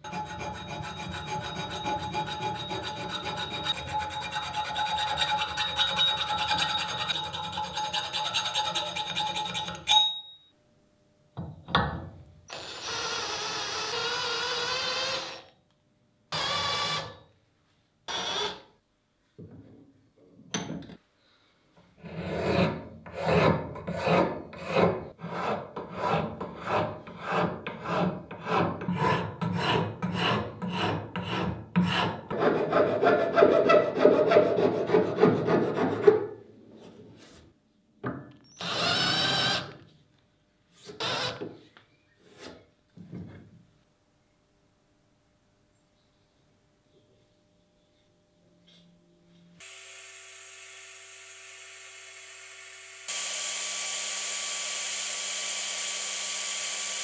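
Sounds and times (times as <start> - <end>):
hand file rasping on metal: 0.0 - 9.9, 22.0 - 36.3.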